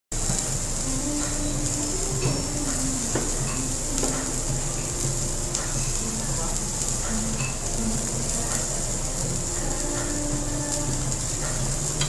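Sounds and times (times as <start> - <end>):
steak sizzling on grill: 0.2 - 12.0.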